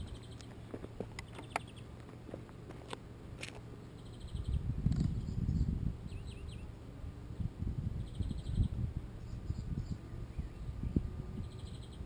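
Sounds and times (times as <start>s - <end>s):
high insect-like chirps: 8.0s - 12.0s.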